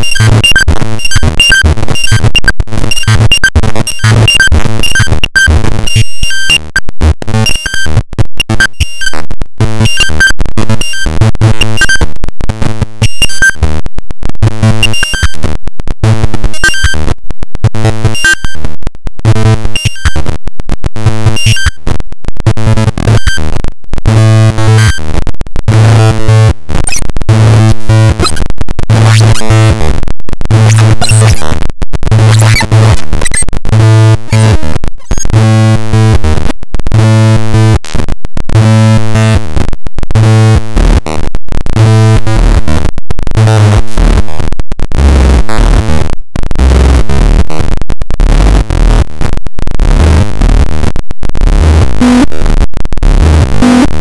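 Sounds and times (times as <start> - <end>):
noisy crackle: 0.0 - 54.0
buzzing sawtooth synthesizer notes: 25.7 - 36.4, 51.4 - 54.0.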